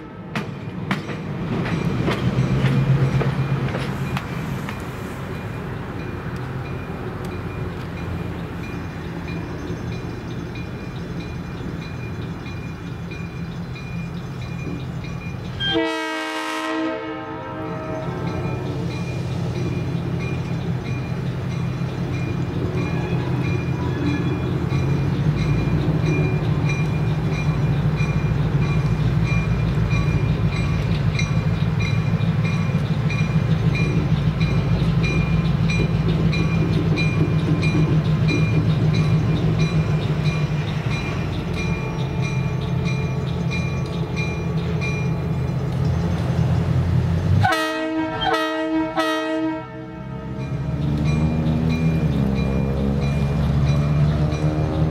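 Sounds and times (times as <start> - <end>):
diesel locomotive engine running: 0.0 - 54.9
locomotive bell ringing: 5.3 - 16.3, 17.1 - 45.9, 49.7 - 54.9
train horn chord: 15.6 - 18.5, 47.4 - 50.5.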